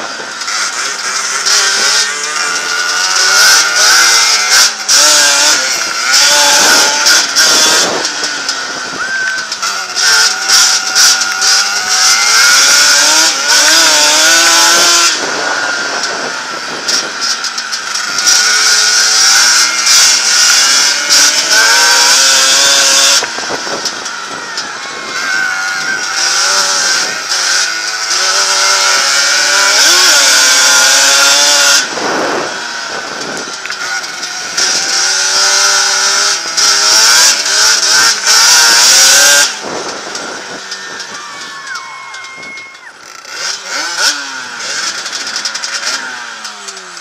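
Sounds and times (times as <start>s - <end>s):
two-stroke engine racing: 0.0s - 47.0s
wind rush over microphone: 22.0s - 27.3s, 30.2s - 33.6s, 38.4s - 41.7s.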